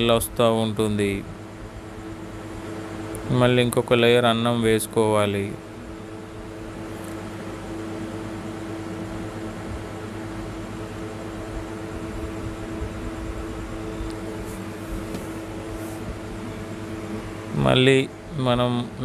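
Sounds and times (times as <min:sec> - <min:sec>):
mechanical hum: 0:00.0 - 0:19.0
even hiss: 0:14.2 - 0:16.2.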